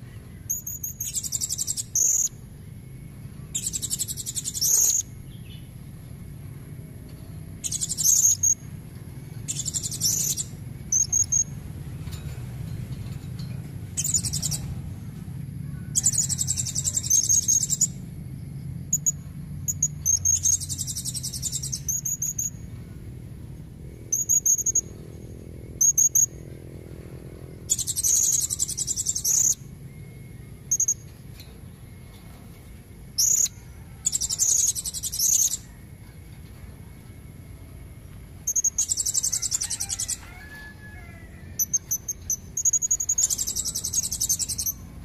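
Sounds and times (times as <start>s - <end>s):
parrot buzzy trills: 18.8s - 45.0s
parrot sharp chirps: 38.4s - 44.8s.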